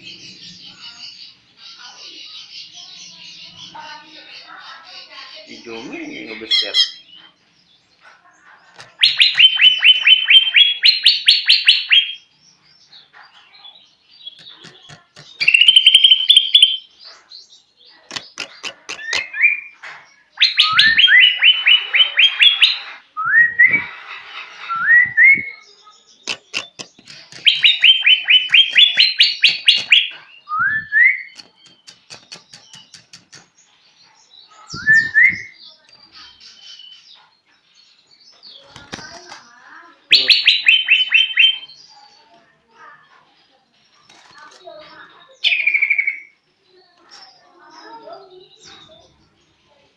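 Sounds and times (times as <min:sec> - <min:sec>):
bird chattering notes: 0:08.6 - 0:12.3, 0:14.3 - 0:17.0, 0:18.0 - 0:30.5, 0:31.2 - 0:33.7, 0:34.6 - 0:36.8, 0:38.6 - 0:41.8.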